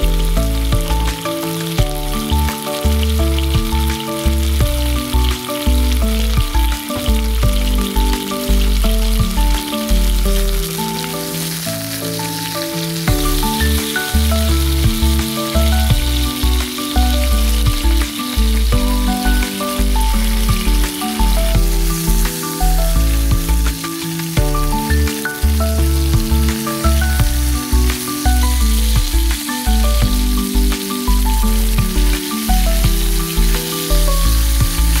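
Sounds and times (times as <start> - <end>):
background music with bass: 0.0 - 35.0
chicken sizzling in a pan: 0.0 - 35.0.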